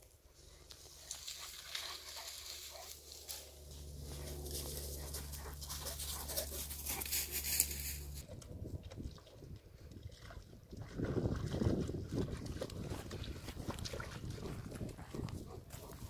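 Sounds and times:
dog footfalls in dry grass: 0.7 - 8.2
low steady rumble: 2.2 - 8.3
dog panting: 4.1 - 7.1.

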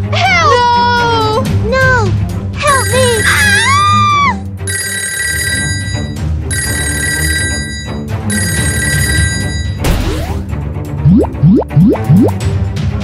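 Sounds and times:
background music: 0.0 - 13.0
telephone bell ringing: 2.7 - 3.7, 4.7 - 9.8.

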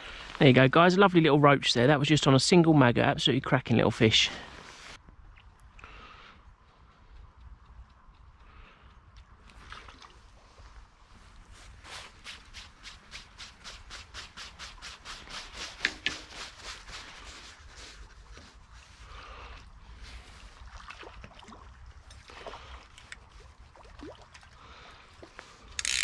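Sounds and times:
stream trickling: 9.1 - 19.1, 19.8 - 26.0
fishing reel ticking: 25.7 - 26.0.

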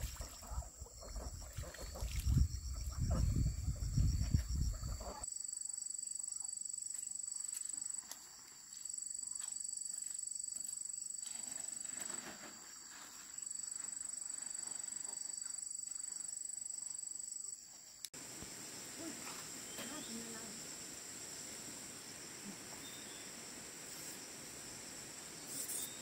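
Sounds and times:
insect trilling: 18.1 - 26.0.

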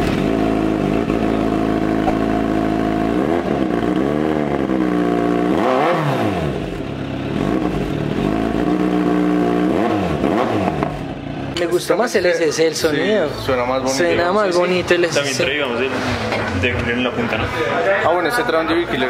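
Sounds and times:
motorcycle engine idling and revving: 0.0 - 17.1.

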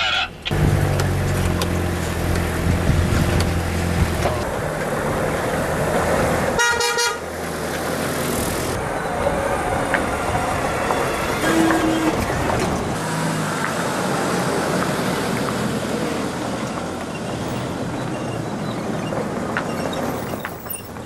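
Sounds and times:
off-road vehicles driving past: 0.0 - 21.0
car horn toot: 6.6 - 7.3, 11.4 - 12.3.

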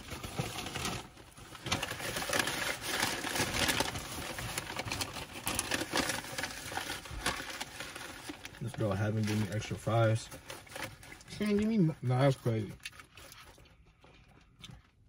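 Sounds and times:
paper wrapper crinkling: 0.0 - 14.5.

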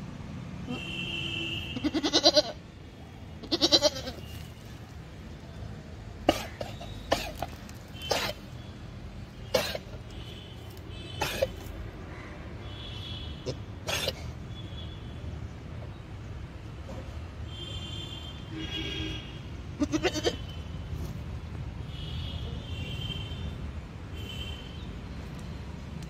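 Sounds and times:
goat bleating: 1.8 - 2.6, 3.4 - 4.4, 19.8 - 20.5
goat coughing: 1.8 - 2.6, 3.4 - 4.4, 6.2 - 8.6, 9.4 - 10.1, 11.1 - 11.7, 13.4 - 14.4, 19.8 - 20.5.

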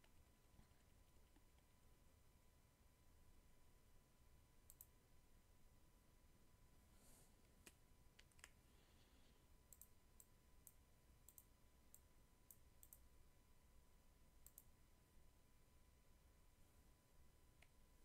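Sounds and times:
computer mouse clicks: 4.6 - 5.0, 7.4 - 8.6, 9.7 - 13.1, 14.4 - 14.7.

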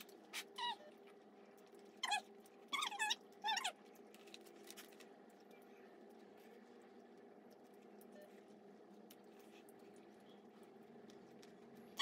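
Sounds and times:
high-pitched whimpering squeaks: 0.3 - 1.0, 2.0 - 3.8.

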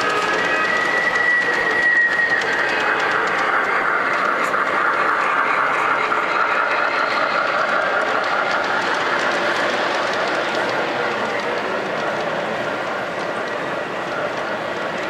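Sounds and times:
model train rolling on track: 0.0 - 15.0
wheels clicking: 0.0 - 15.0.

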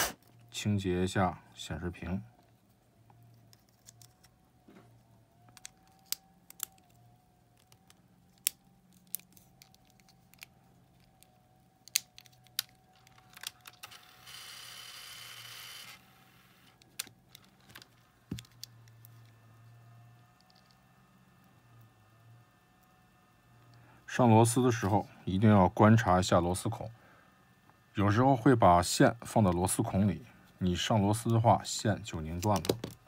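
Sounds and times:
plastic case clicks and taps: 32.4 - 33.0.

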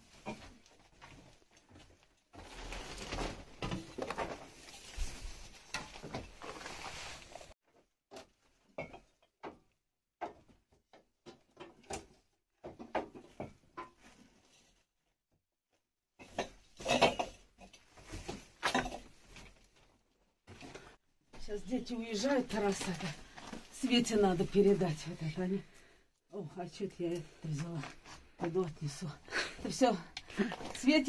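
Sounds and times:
rustling: 2.4 - 7.6.

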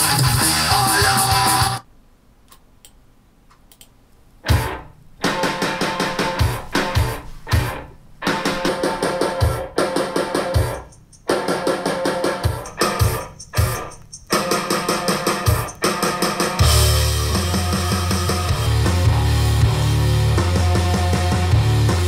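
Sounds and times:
heavy bass: 0.0 - 1.8, 4.5 - 22.0
rock music through loudspeakers: 0.0 - 1.8, 4.4 - 22.0.

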